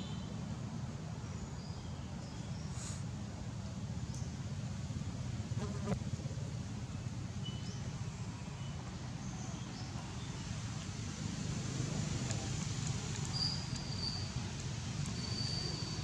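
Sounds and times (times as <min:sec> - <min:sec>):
faint insect buzzing: 0:05.6 - 0:06.0.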